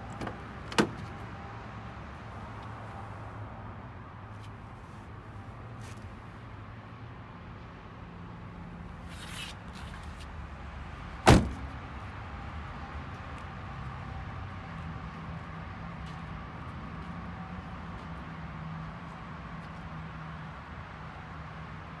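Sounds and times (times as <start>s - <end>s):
car door slamming: 0.1s - 1.1s, 11.2s - 11.8s.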